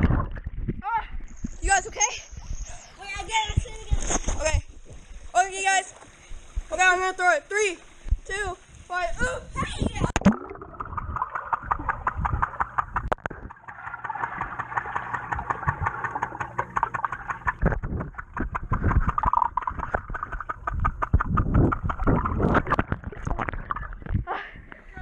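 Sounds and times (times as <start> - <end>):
low thumps in water: 10.1 - 24.3.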